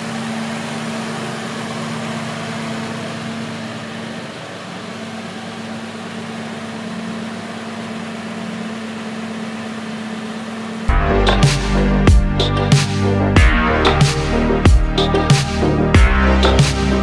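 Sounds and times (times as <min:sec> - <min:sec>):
car engine idling: 0:00.0 - 0:17.0.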